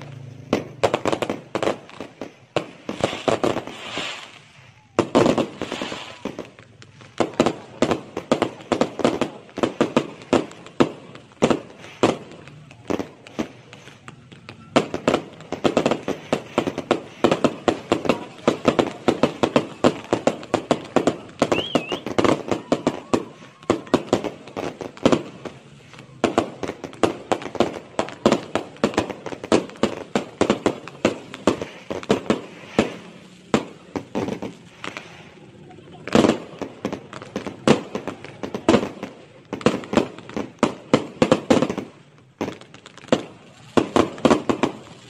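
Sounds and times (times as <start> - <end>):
fireworks bangs and crackles: 0.0 - 45.0.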